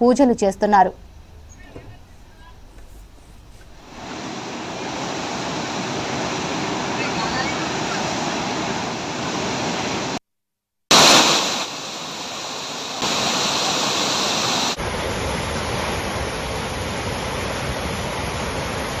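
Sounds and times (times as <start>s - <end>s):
water roaring over a weir: 3.8s - 10.2s, 10.9s - 19.0s.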